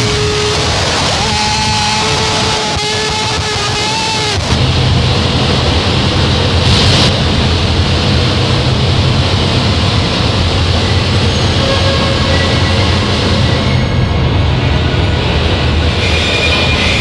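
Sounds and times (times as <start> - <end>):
harsh distorted noise music: 0.0 - 5.0
heavy low rumble: 0.0 - 17.0.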